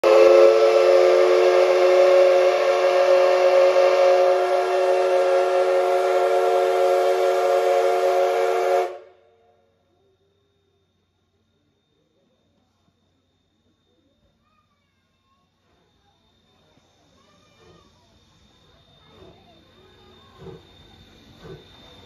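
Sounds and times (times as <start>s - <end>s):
steam hiss: 0.0s - 9.1s, 15.6s - 22.0s
steam whistle blast: 0.0s - 9.3s.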